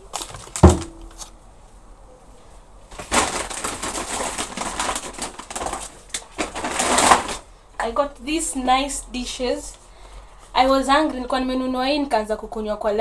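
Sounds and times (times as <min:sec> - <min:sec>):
sharp knocks: 0:00.6 - 0:01.1
shopping bag rustling: 0:02.9 - 0:07.5.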